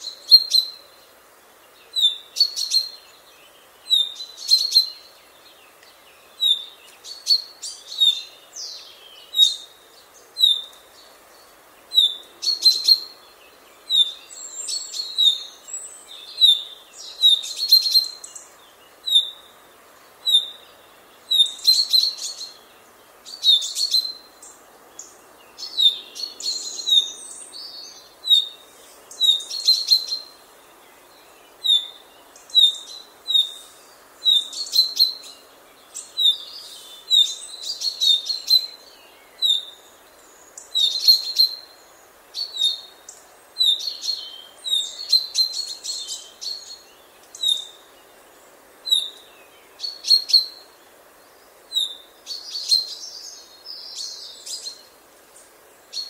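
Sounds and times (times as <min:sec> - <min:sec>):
faint outdoor background noise: 0:00.0 - 0:56.0
chaffinch calling: 0:40.6 - 0:41.8.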